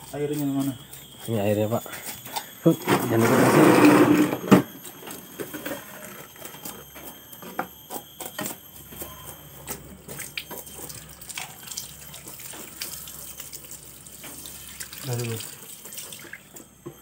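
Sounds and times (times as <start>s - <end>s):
hose water splashing: 10.1s - 16.6s.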